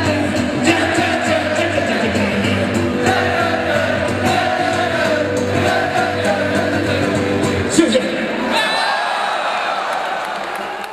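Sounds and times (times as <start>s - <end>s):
live rock band with singing: 0.0s - 8.3s.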